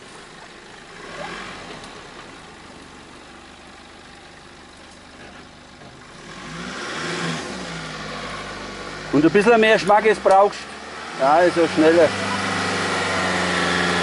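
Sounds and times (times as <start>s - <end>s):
car engine running: 0.0s - 14.0s.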